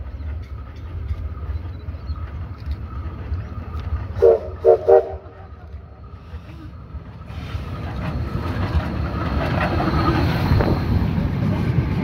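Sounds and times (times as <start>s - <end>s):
steam whistle toots: 4.2s - 5.2s.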